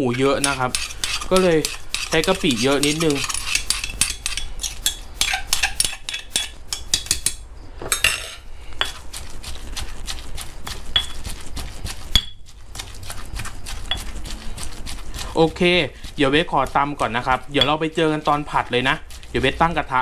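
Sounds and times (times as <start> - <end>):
stone pestle pounding in mortar: 0.0 - 7.4, 10.6 - 19.1
metal spoon clinking on mortar: 0.1 - 9.0, 10.9 - 11.2, 12.1 - 12.4, 17.5 - 18.4.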